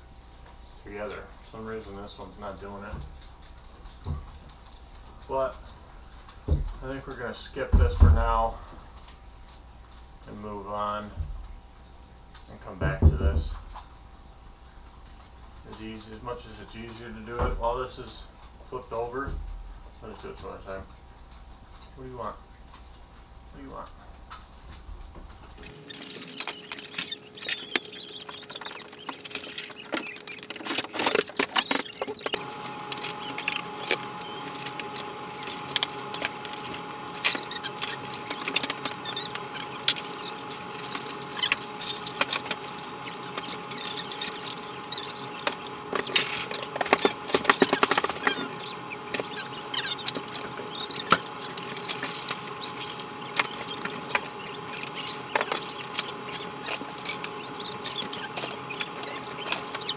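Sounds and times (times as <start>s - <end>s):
high wavering squeaks: 25.6s - 59.9s.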